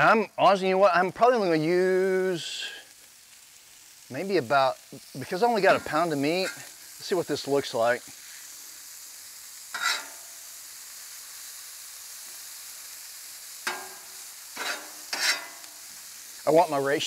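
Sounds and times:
vegetables sizzling on griddle: 0.0 - 17.0
metal spatula scraping steel: 9.7 - 10.3, 13.6 - 15.7.

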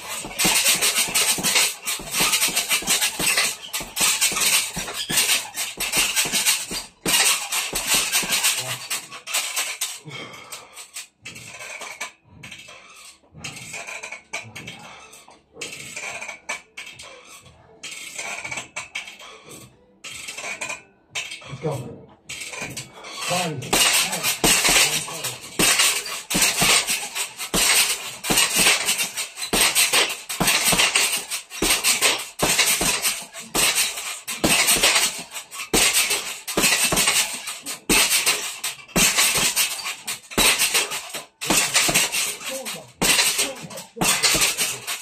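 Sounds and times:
boxing gloves punching heavy bag: 0.0 - 10.5, 22.5 - 45.0.

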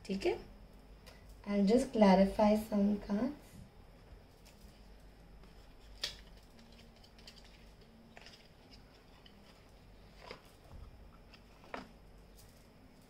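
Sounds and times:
cards snapping: 5.9 - 7.5.

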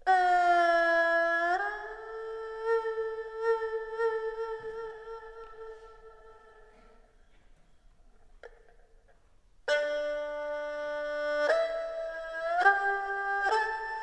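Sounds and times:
erhu sustained note: 0.0 - 7.1.

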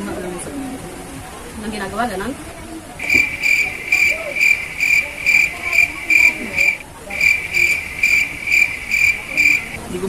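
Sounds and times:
insect trilling: 3.0 - 9.8.

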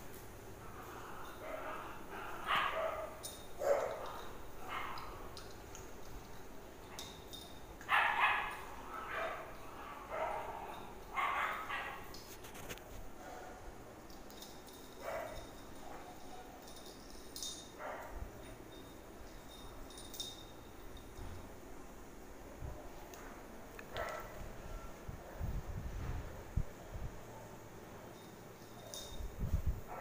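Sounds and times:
dogs barking and yipping: 1.2 - 5.6, 6.9 - 12.2.

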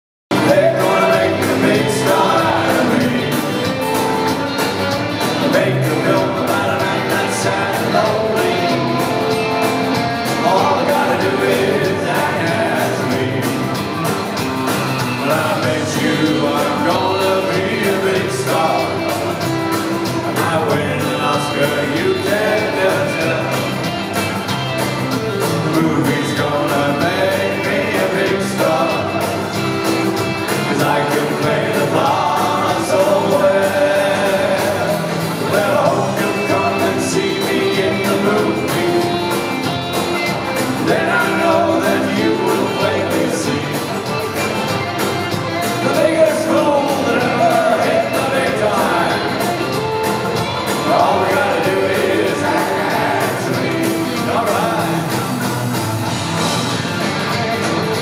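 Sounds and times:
man singing lead: 0.3 - 56.6
live rock band playing: 0.3 - 58.0.

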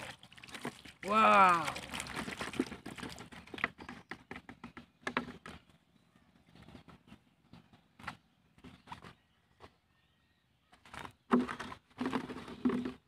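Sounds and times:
plastic bottle trap shaken: 0.0 - 5.5, 10.9 - 13.0.

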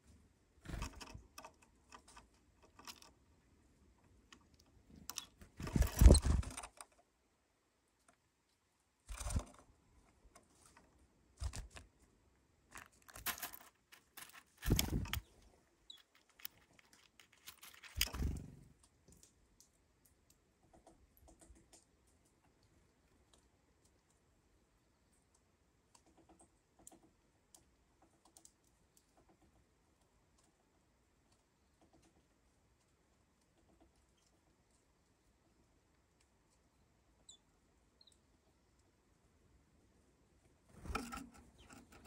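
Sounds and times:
seeds rattling in plastic bowl: 12.7 - 18.4.

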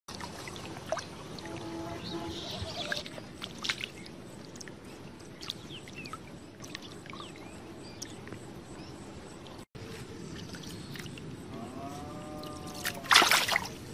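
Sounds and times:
muddy water splashing: 0.1 - 8.3, 12.0 - 13.9.

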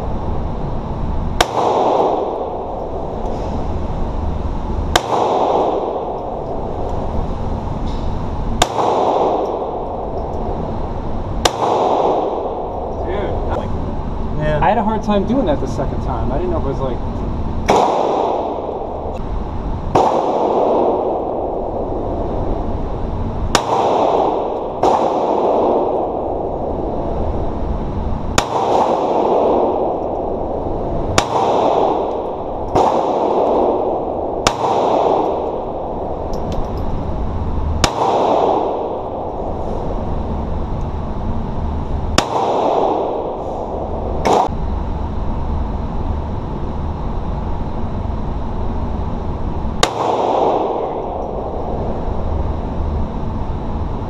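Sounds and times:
pistol shots with echo: 1.4 - 2.8, 4.9 - 6.4, 8.6 - 10.0, 11.4 - 12.9, 17.7 - 18.9, 19.9 - 21.5, 23.5 - 26.3, 28.4 - 30.2, 31.2 - 35.9, 37.8 - 39.3, 42.1 - 43.4, 44.2 - 44.5, 49.8 - 51.4.

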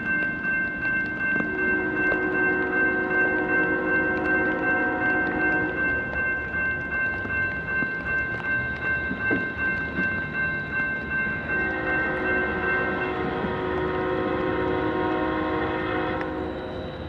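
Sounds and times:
crossing warning bell ringing: 0.0 - 17.0
distant train horn: 1.5 - 5.8, 11.5 - 17.0.

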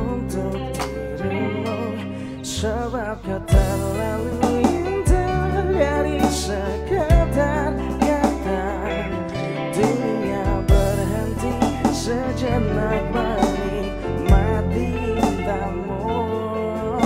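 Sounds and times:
man singing into microphone: 0.0 - 17.0
live band playing: 3.6 - 17.0
heavy low hits: 9.8 - 15.6.

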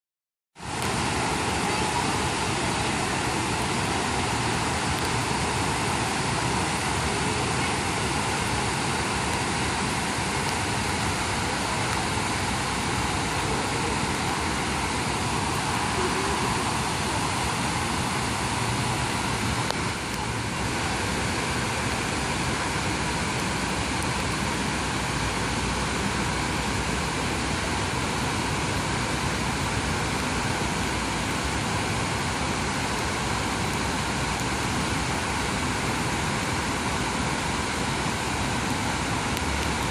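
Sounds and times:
water rushing down fountain cascade: 0.6 - 39.9.

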